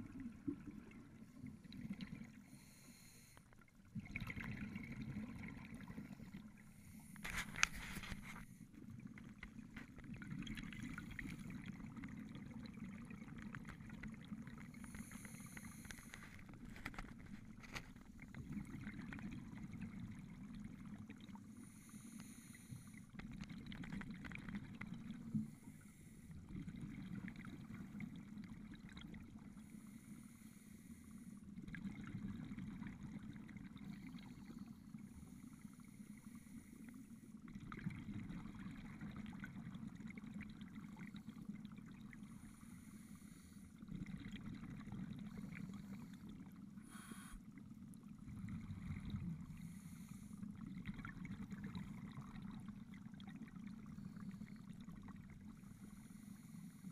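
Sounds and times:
muffled underwater bubbles: 0.0s - 56.9s
regulator breathing hiss: 46.8s - 47.4s.

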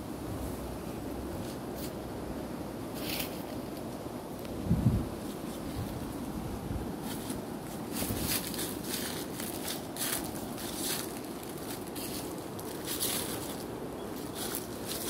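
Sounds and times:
leaves rustling: 0.0s - 15.0s
wind on microphone: 4.4s - 11.0s
footsteps: 7.0s - 15.0s.

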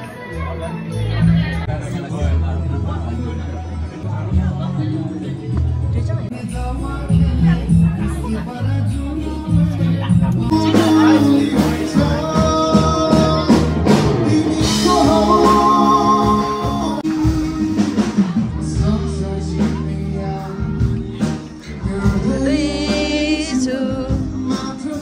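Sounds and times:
person singing: 6.3s - 25.0s
instruments playing: 10.4s - 25.0s.

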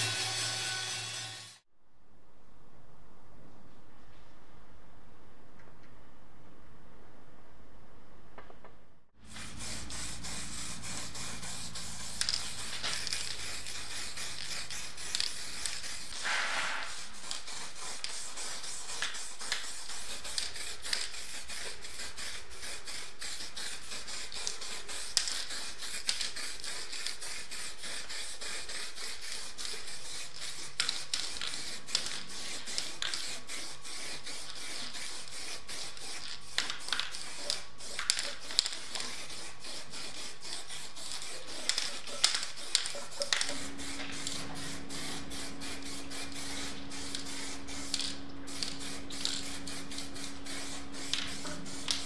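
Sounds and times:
spray paint can hissing: 9.2s - 52.0s
steady low hum: 37.7s - 52.0s.

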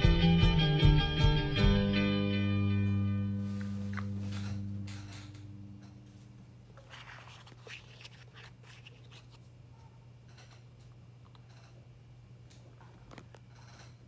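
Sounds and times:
guitar music: 0.0s - 5.8s.

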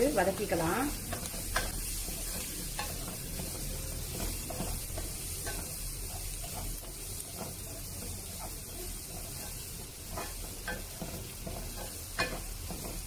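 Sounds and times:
vegetables sizzling in oil: 0.0s - 13.0s
spatula scraping a pan: 0.2s - 13.0s.

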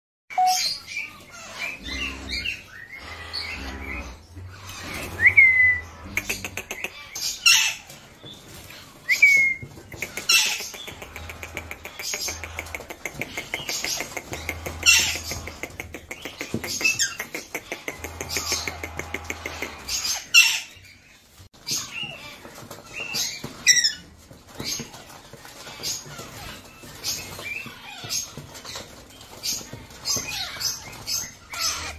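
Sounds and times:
parakeets squawking and screeching: 0.4s - 31.9s.

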